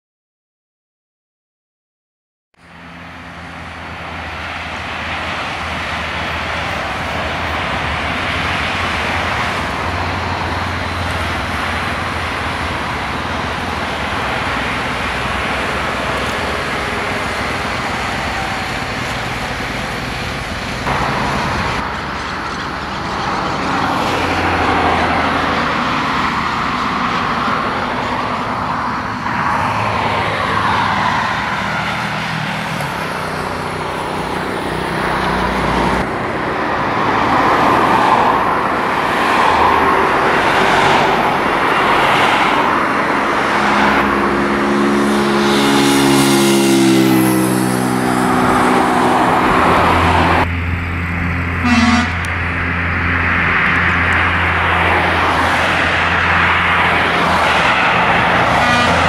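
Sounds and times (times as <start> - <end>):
cars passing on road: 2.6 - 59.0.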